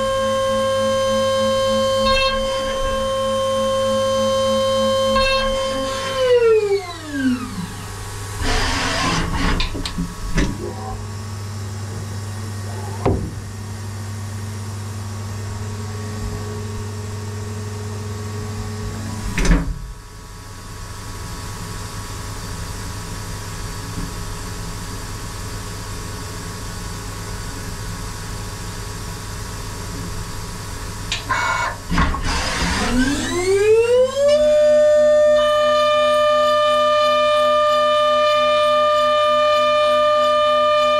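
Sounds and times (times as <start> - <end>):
milling spindle whine: 0.0 - 9.6
machine humming: 0.0 - 19.5, 30.7 - 40.9.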